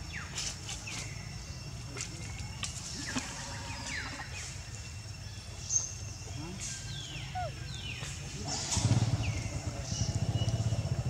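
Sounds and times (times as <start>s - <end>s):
low outdoor rumble: 0.0s - 11.0s
animal chirps and squeaks: 6.6s - 8.2s.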